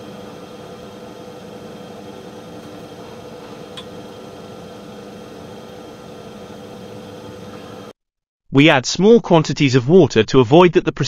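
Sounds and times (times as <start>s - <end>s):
equipment hum and hiss: 0.0s - 7.9s.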